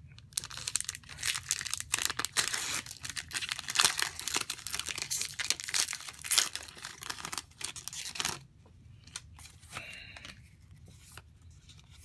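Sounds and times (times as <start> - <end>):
foil wrapper tearing and crinkling: 0.3 - 8.4.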